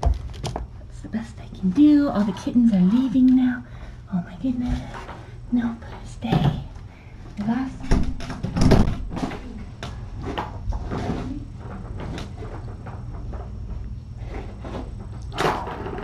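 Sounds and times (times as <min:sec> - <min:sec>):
handling bumps and knocks: 0:00.0 - 0:00.8
steady low hum: 0:00.0 - 0:16.0.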